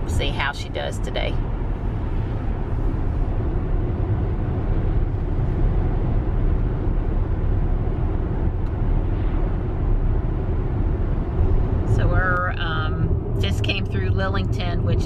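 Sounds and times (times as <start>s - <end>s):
low wind hum in car: 0.0s - 15.0s
tyre and road noise: 0.0s - 15.0s.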